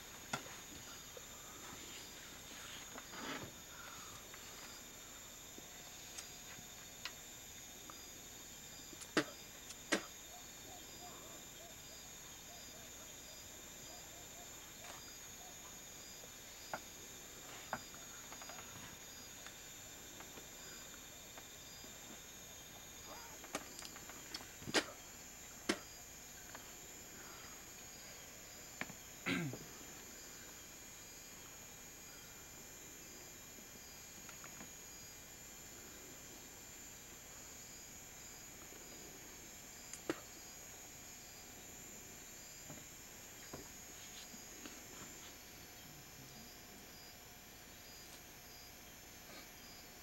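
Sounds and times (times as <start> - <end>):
crickets trilling: 0.0 - 50.0
insects chirping: 0.0 - 50.0
faint ticks: 5.6 - 7.2.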